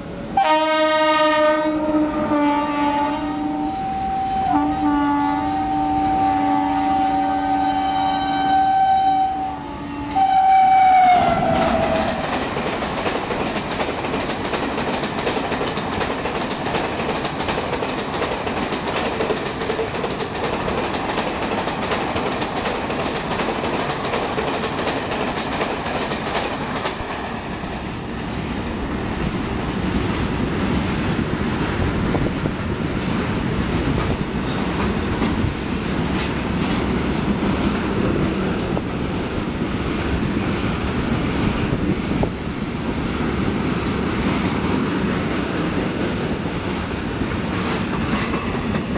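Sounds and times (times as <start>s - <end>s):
freight train rumbling past: 0.0s - 48.9s
train coaches rushing past: 0.0s - 48.9s
train horn: 0.3s - 12.4s.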